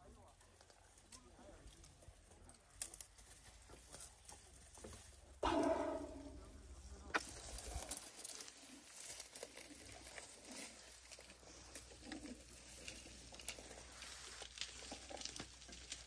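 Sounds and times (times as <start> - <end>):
elephants tearing dry grass: 7.2 - 16.0.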